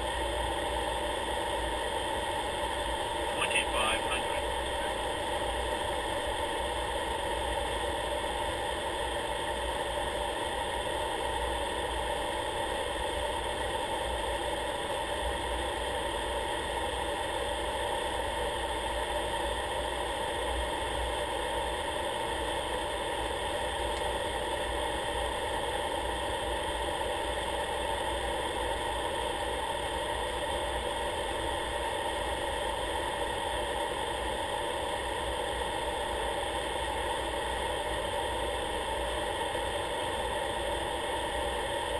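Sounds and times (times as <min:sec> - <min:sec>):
aircraft drone in flight: 0:00.0 - 0:41.9.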